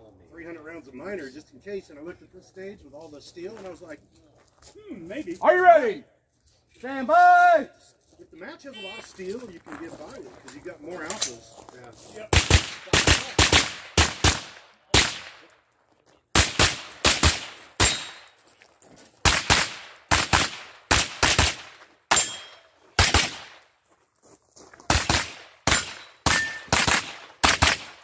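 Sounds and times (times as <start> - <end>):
rapid gunshots: 12.3 - 15.5, 16.4 - 18.2, 19.2 - 22.4, 23.0 - 23.6, 24.9 - 28.0.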